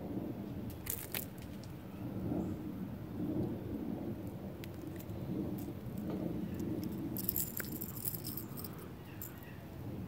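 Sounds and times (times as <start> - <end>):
wind rumble on microphone: 0.0 - 10.0
fishing lure hooks jingling: 6.9 - 9.4.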